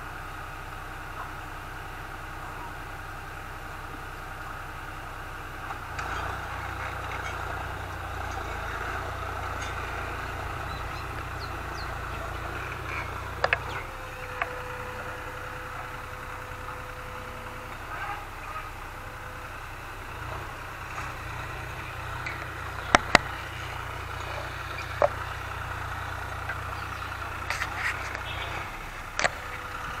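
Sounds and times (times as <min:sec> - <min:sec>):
tractor engine rumbling: 0:00.0 - 0:30.0
sharp clicks: 0:22.2 - 0:23.6.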